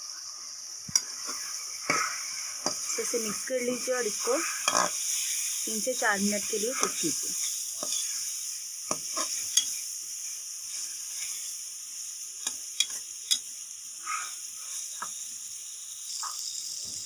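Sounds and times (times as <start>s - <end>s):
meat sizzling in oil: 0.0s - 17.0s
metal spoon scraping a pan: 4.2s - 5.6s, 6.4s - 8.3s, 8.9s - 9.8s.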